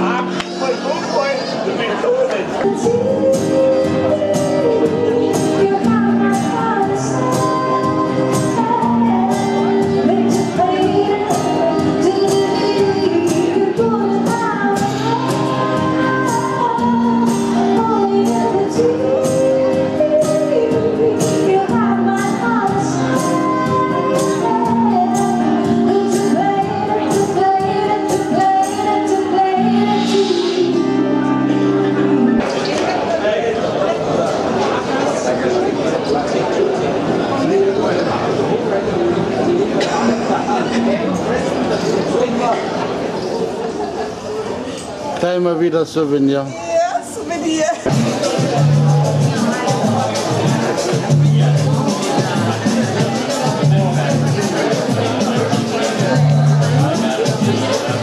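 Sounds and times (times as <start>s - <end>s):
woman singing: 2.1s - 32.4s
percussion beat: 47.8s - 58.0s.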